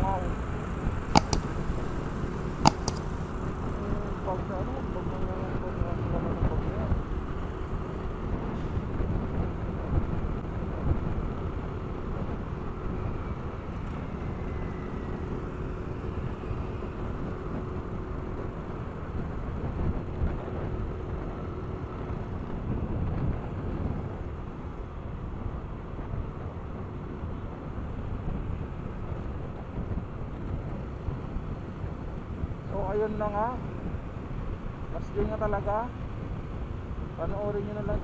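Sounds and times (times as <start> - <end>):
wind on the microphone: 15.9 - 38.0.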